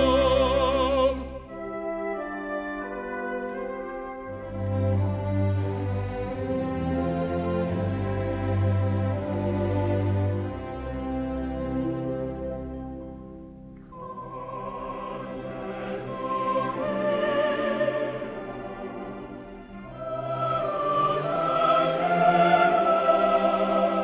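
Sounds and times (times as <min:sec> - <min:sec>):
choir singing with vibrato: 0:00.0 - 0:01.6, 0:13.9 - 0:24.0
orchestral accompaniment: 0:00.0 - 0:24.0.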